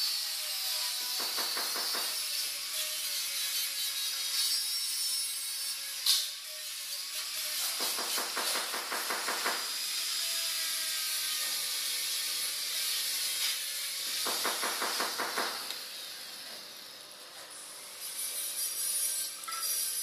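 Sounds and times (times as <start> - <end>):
angle grinder grinding metal: 0.0 - 20.0.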